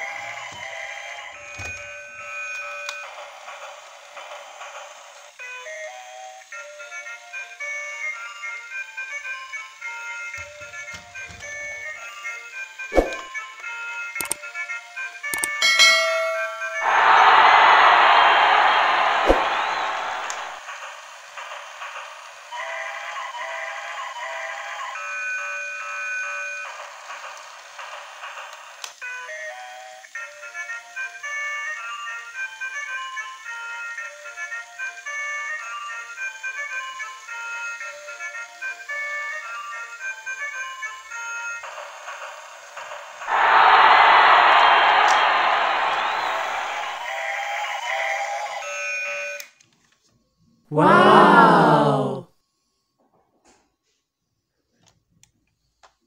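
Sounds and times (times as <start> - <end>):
tinny electronic toy tune: 15.4 - 16.9.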